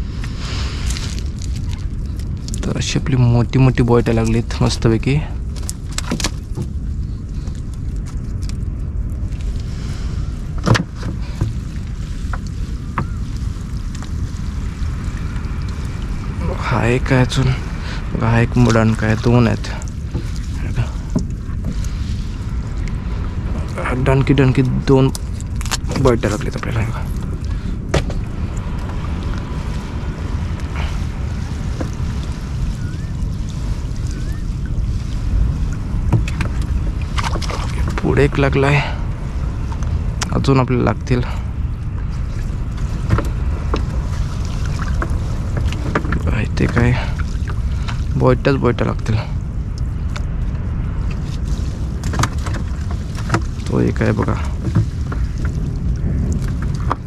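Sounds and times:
wind rumble on microphone: 0.0 - 57.0
water lapping against boat: 4.1 - 57.0.

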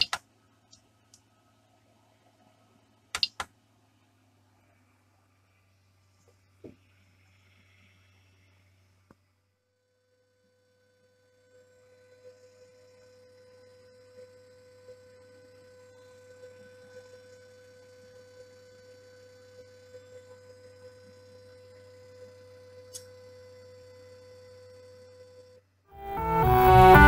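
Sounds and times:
small irregular ticks: 3.1 - 3.5
sharp click: 3.2 - 3.5.

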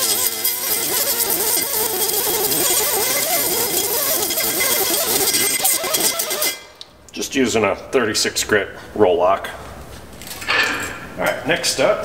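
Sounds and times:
die grinder grinding metal: 0.0 - 6.7.

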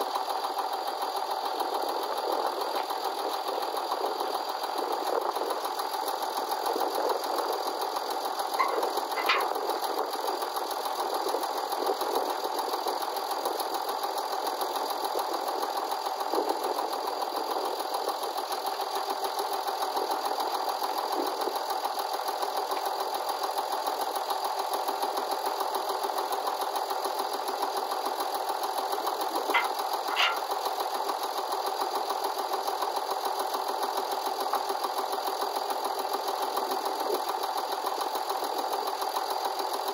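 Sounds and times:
diesel tractor engine idling: 0.0 - 39.9
metallic clicks: 8.6 - 9.6, 29.5 - 30.4.

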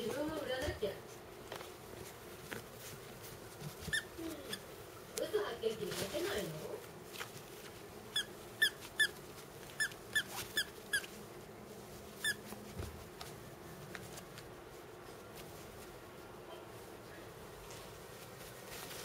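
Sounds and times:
dog toy squeaking: 3.9 - 4.6.

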